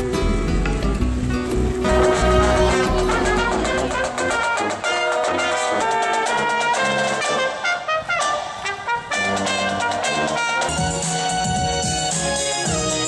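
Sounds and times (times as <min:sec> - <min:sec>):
brass band playing: 0:01.8 - 0:13.0.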